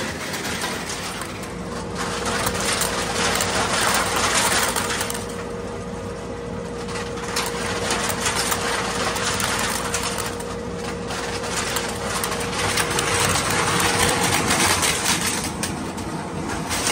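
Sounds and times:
machine hum: 0:00.0 - 0:16.9
crushed cans clattering in metal: 0:07.1 - 0:15.8.

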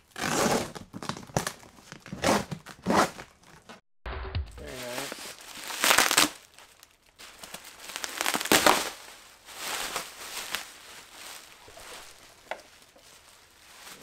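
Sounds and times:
bubble wrap crinkling: 0:04.6 - 0:14.0.

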